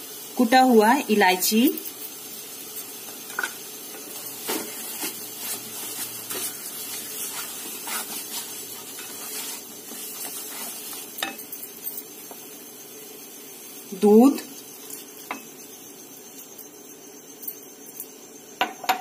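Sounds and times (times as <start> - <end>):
halwa sizzling in a pan: 0.0 - 19.0
spoon scraping and knocking pan: 3.1 - 12.5.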